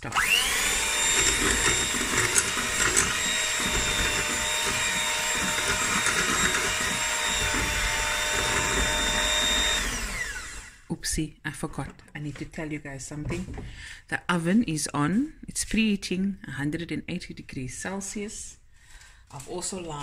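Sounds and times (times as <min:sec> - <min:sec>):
electric hand mixer whine: 0:00.0 - 0:10.9.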